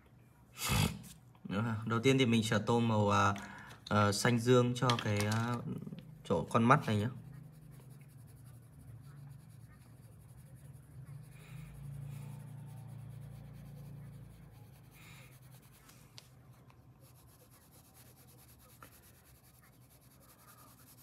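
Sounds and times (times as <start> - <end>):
crayon scratching on paper: 6.4 - 21.0.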